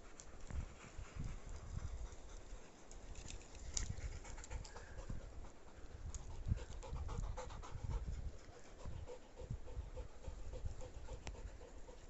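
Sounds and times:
dog panting: 3.9 - 12.0.

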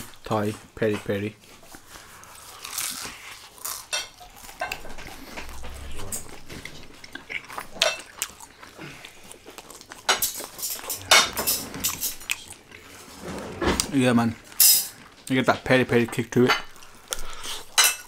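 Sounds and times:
person biting and chewing: 1.7 - 11.1, 12.2 - 13.0
cutlery clinking on plates: 3.9 - 5.1, 10.1 - 12.4, 14.6 - 15.0, 17.7 - 18.0.

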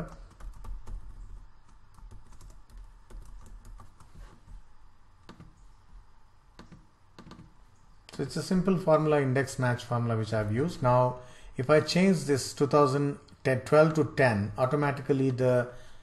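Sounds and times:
keyboard and mouse clicking: 0.0 - 4.2, 5.2 - 5.6
faint low hum: 0.0 - 16.0.

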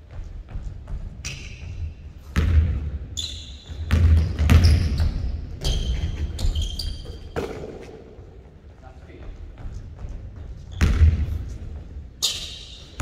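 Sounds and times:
basketball bouncing on wooden floor: 0.1 - 3.0, 3.6 - 7.8, 9.3 - 11.8
sneaker squeaks on hardwood: 1.1 - 2.2, 3.2 - 7.8, 10.4 - 11.1, 12.2 - 13.0.

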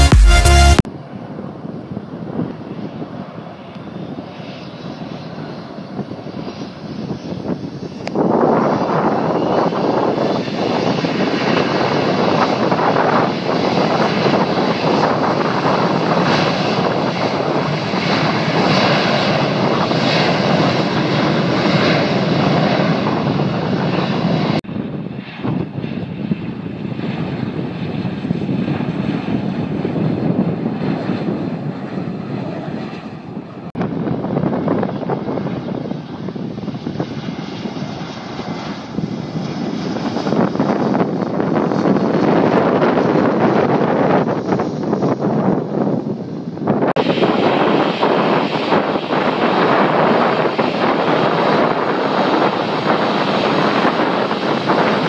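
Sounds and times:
airliner passing overhead: 0.8 - 55.0
jet engines at takeoff thrust: 0.8 - 55.0.

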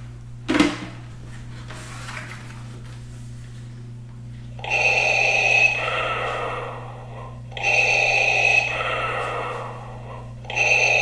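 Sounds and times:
heavy breathing through helmet: 4.6 - 11.0.

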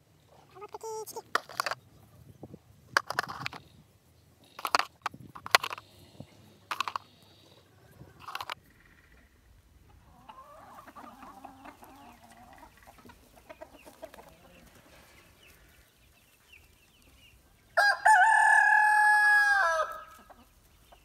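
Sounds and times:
hens clucking: 0.3 - 2.3, 4.4 - 18.4, 19.5 - 21.0
rooster crowing: 17.8 - 20.2.

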